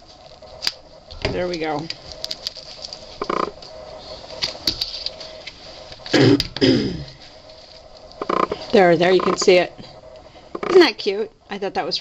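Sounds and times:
package crinkling and clicking: 1.5s - 3.1s.

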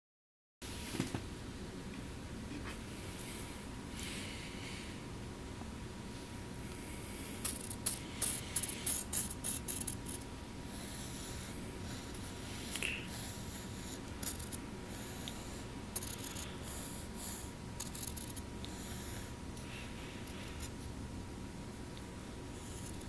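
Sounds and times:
background hum and hiss: 0.6s - 23.0s
pencil scratching on paper: 7.4s - 19.3s, 22.5s - 23.0s.

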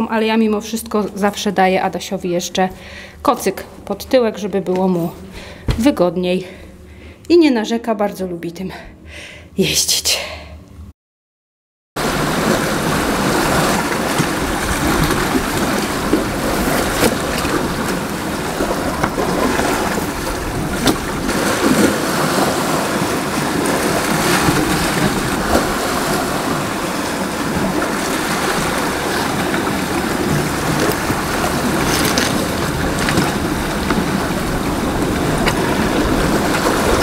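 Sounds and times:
sea surf rushing: 12.0s - 37.0s
wind buffeting microphone: 12.1s - 37.0s.

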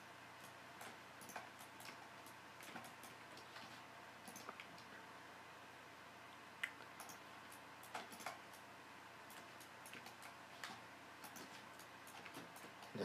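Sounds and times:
computer mouse clicks: 0.4s - 4.9s, 6.6s - 8.7s, 9.3s - 13.0s.

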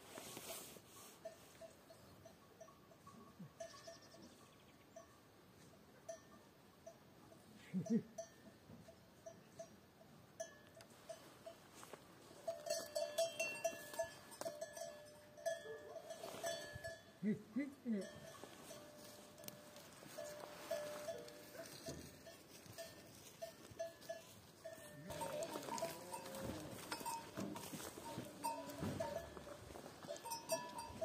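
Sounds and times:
cow bell clanking: 1.2s - 5.4s, 6.0s - 11.7s, 12.4s - 31.0s
low cattle calls: 25.0s - 27.2s.

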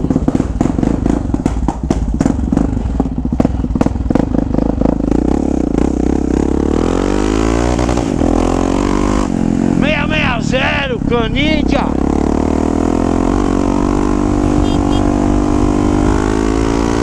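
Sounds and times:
motorcycle engine thumping and revving: 0.0s - 17.0s.

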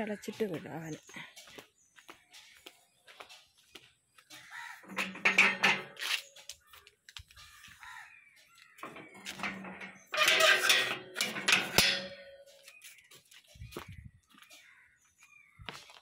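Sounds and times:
metal gate creaking and scraping: 4.8s - 6.4s, 8.8s - 12.7s.

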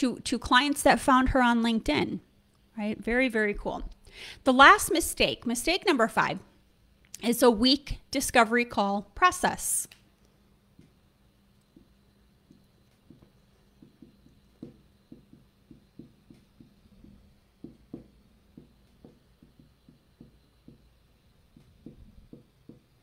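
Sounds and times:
low steady hum: 0.0s - 23.0s
marker tapping on whiteboard: 11.7s - 23.0s.

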